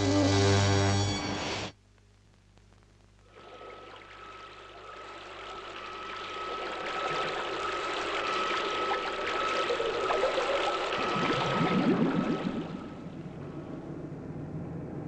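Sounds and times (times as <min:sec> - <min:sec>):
steady high whine: 0:00.0 - 0:15.0
gurgling bubbles: 0:03.3 - 0:14.0
rushing bubbling water: 0:03.3 - 0:14.1.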